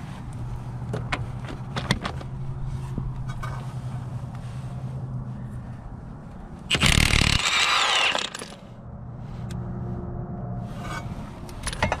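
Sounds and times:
falling motor whine: 0:06.7 - 0:08.6.

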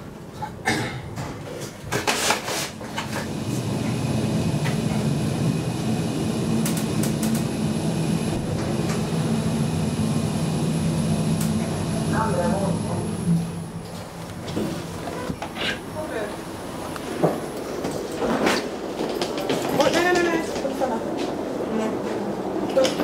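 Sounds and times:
elevator running hum: 0:02.8 - 0:23.0.

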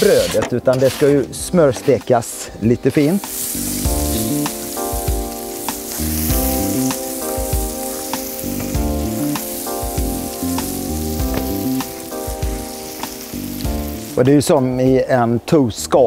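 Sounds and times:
bread sizzling in butter: 0:02.9 - 0:14.8.

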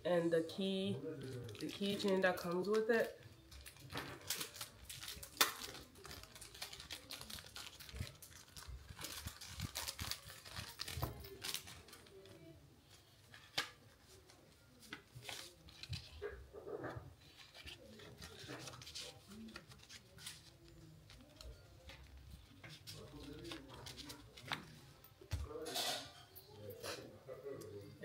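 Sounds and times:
packaging wrap crinkling: 0:01.2 - 0:12.5
sharp crack of wrap: 0:03.5 - 0:12.3.

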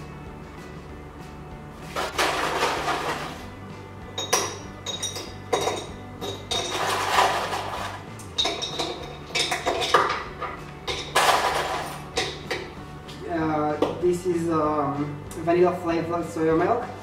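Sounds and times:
light background music: 0:00.0 - 0:17.0
metal spoon clinking on glass jar: 0:04.2 - 0:07.0, 0:08.3 - 0:10.2.

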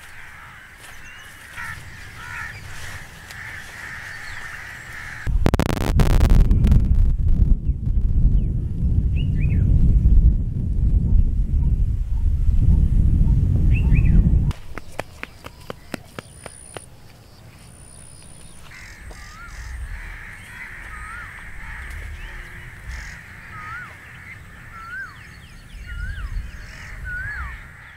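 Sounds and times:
bird calling: 0:00.0 - 0:05.3, 0:13.8 - 0:27.9
loud low rumble: 0:05.3 - 0:14.5.

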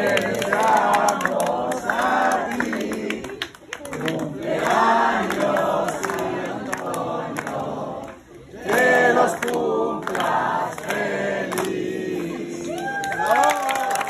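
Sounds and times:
group of people singing: 0:00.0 - 0:12.9.

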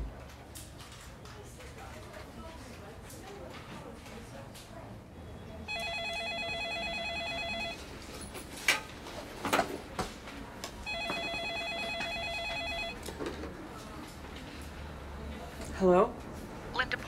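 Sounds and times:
phone warbling ring: 0:05.7 - 0:07.8, 0:10.9 - 0:13.0.

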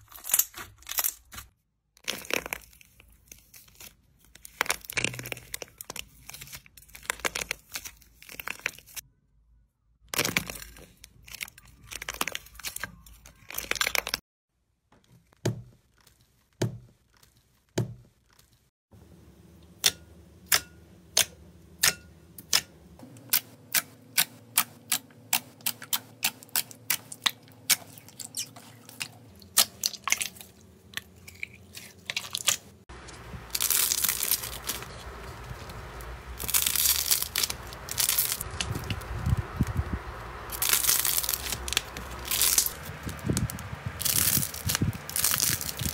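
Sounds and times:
slime crinkling and crunching: 0:00.0 - 0:09.0, 0:10.1 - 0:14.2, 0:24.1 - 0:45.9
slime crackling: 0:24.9 - 0:45.9.

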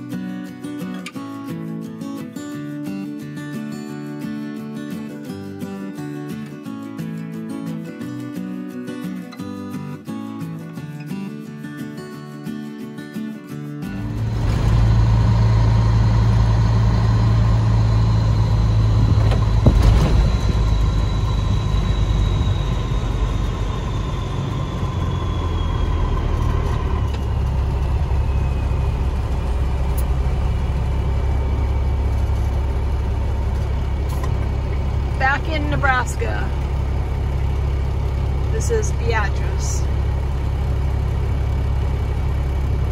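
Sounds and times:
diesel truck engine drone: 0:13.8 - 0:42.9
faint whine: 0:14.0 - 0:37.9.

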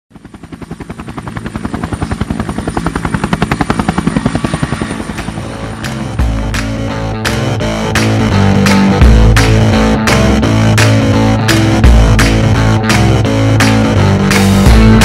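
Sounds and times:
helicopter rotor blades beating: 0:00.1 - 0:15.0
rock music with heavy bass: 0:05.9 - 0:15.0.

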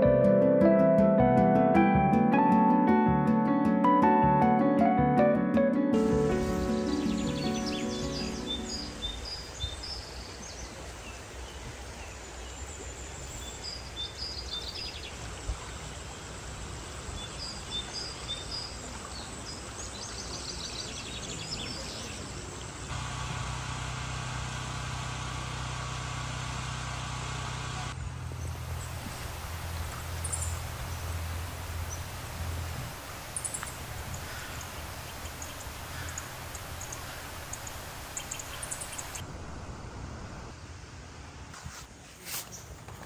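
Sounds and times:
birds chirping: 0:06.0 - 0:23.1, 0:28.3 - 0:40.6
steady low hum: 0:22.7 - 0:41.5.

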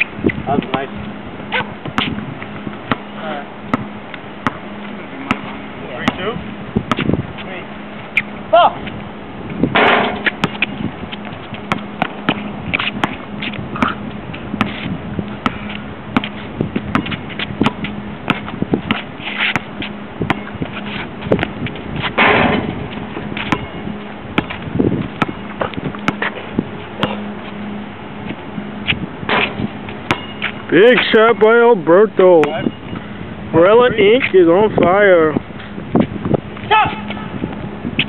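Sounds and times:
basketball bouncing on court: 0:00.6 - 0:07.1, 0:09.7 - 0:14.0, 0:15.4 - 0:20.6, 0:21.4 - 0:26.4, 0:29.3 - 0:30.7.

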